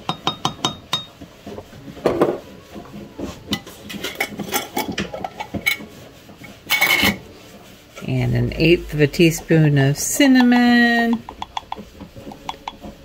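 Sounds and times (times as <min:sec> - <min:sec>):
dishes and cutlery clattering: 0:00.0 - 0:01.2, 0:03.5 - 0:05.9, 0:06.5 - 0:07.2, 0:11.2 - 0:13.0.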